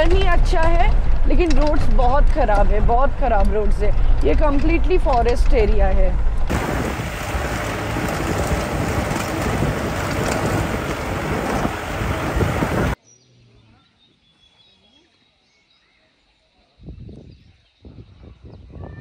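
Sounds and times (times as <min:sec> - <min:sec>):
car driving on stony road: 0:00.0 - 0:13.0
heavy low rumble: 0:00.0 - 0:13.0
wind rushing over microphone: 0:00.0 - 0:13.0, 0:16.8 - 0:19.0.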